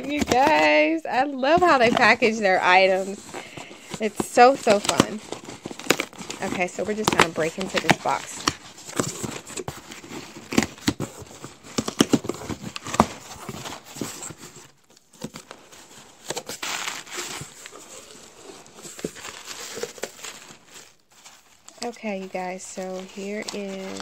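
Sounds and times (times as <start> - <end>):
paper rustling: 0.0 - 24.0
shredded paper packing crinkling: 0.0 - 24.0
tape ripping off cardboard box: 4.8 - 15.6.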